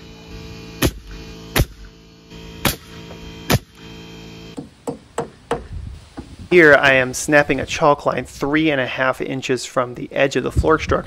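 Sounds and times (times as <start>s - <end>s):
nail gun firing: 0.8s - 1.9s, 2.6s - 3.8s.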